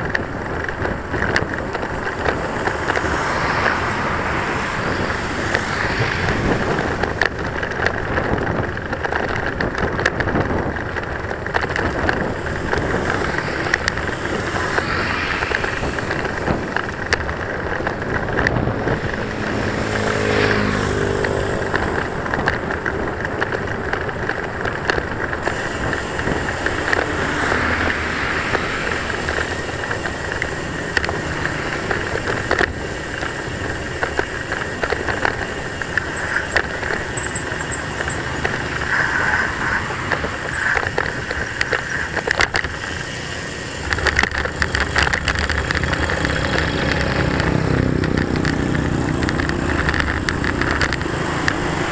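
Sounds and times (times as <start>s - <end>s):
bicycle clicks and rattles: 0.0s - 51.9s
road traffic passing: 0.0s - 51.9s
wind on microphone: 0.0s - 51.9s
vehicle engine passing: 2.3s - 8.5s, 11.9s - 23.1s, 25.6s - 51.9s.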